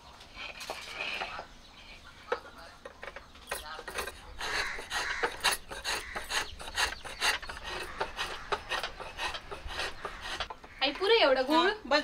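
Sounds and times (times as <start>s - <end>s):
metal blade scraping jaggery: 3.4s - 11.5s.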